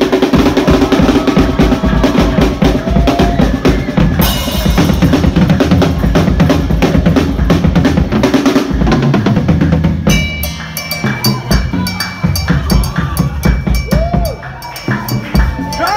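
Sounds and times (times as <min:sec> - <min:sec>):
drum kit played fast: 0:00.0 - 0:15.9
ringing cymbal: 0:10.1 - 0:15.9.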